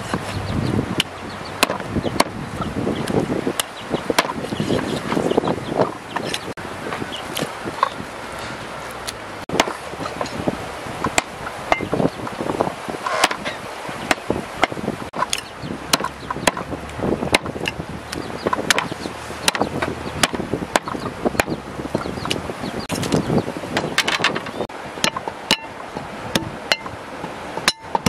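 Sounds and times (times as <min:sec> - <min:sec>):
cleaver chopping on wooden block: 0:01.6 - 0:02.4, 0:09.5 - 0:09.8, 0:13.1 - 0:13.5, 0:14.1 - 0:16.7, 0:18.6 - 0:21.6.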